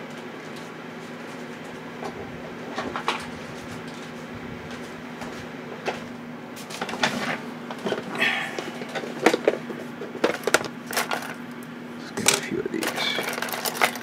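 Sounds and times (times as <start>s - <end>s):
steady low hum: 0.0s - 14.0s
objects knocking and clattering: 6.8s - 11.4s, 12.2s - 14.0s.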